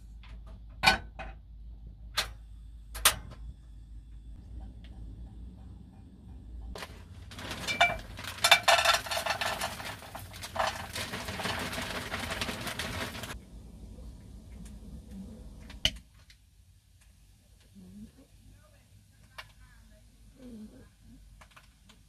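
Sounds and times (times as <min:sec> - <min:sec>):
plastic packet crinkling: 0:06.8 - 0:13.4.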